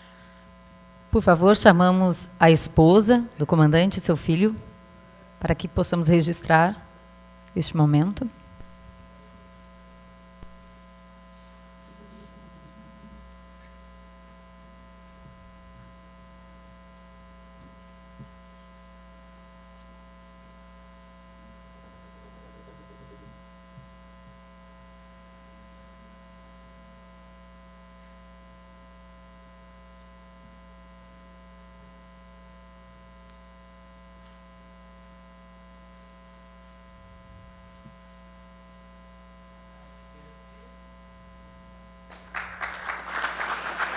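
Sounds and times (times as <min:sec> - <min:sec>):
electrical mains hum: 0:00.0 - 0:43.9.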